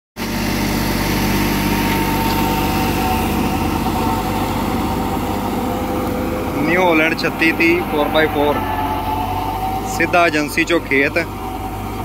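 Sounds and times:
thin steady whine: 0.2s - 12.0s
tractor diesel engine under load: 0.2s - 12.0s.

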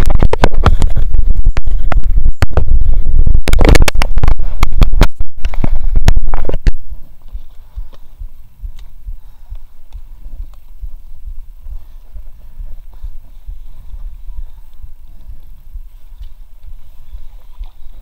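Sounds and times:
scraping and knocking on microphone: 0.0s - 12.3s.

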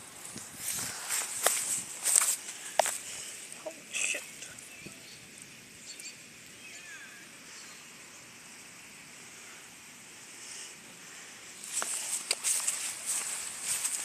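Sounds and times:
footsteps rustling through grass: 0.0s - 3.6s, 11.6s - 14.0s
faint high hiss: 0.0s - 14.0s.

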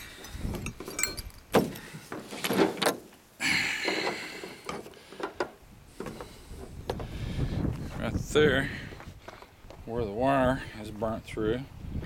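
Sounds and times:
knocks and clicks of handling: 3.9s - 7.1s.

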